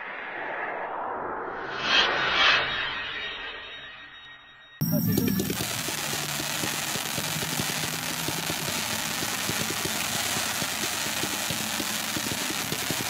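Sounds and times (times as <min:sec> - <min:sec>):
firework crackling hiss: 0:04.8 - 0:13.0
firework launch thumps: 0:05.4 - 0:13.0.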